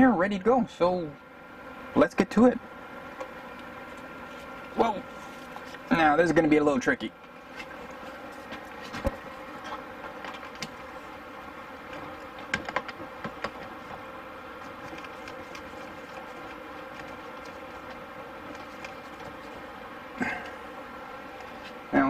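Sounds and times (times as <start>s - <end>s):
buzzing hum: 0.0s - 22.0s
sharp clicks and knocks: 11.9s - 14.0s.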